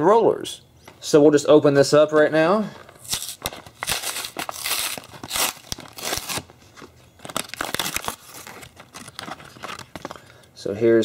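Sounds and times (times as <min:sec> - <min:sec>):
paper tearing: 0:03.0 - 0:06.5
plastic crinkling: 0:03.0 - 0:10.3.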